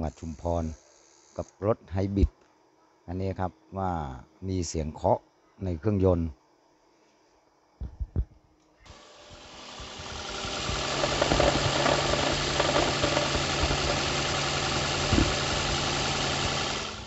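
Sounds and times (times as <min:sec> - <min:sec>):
engine knocking: 0:10.1 - 0:17.0
car engine idling: 0:10.8 - 0:17.0.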